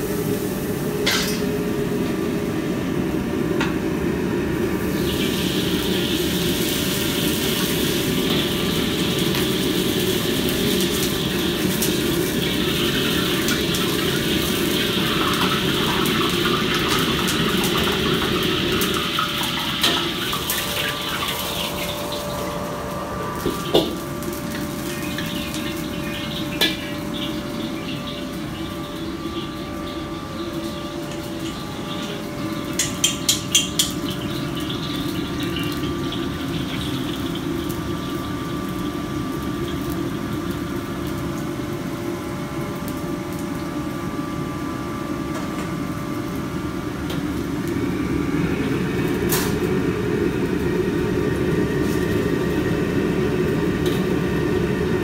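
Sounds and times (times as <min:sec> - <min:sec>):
wok burner rushing: 0:00.0 - 0:43.2, 0:45.3 - 0:55.0
egg sizzling in a wok: 0:04.6 - 0:42.1.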